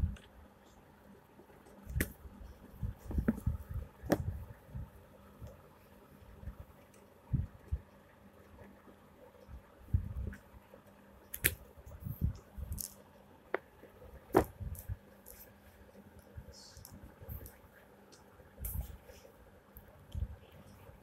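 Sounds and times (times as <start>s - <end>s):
books thumping down: 14.3s - 14.6s.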